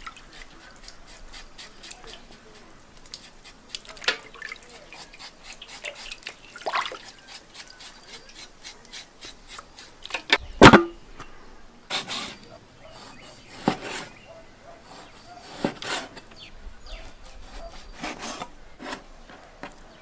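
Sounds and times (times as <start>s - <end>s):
water sloshing and dripping: 0.0s - 7.3s
knife scraping pork rind: 0.0s - 10.4s, 11.9s - 19.5s.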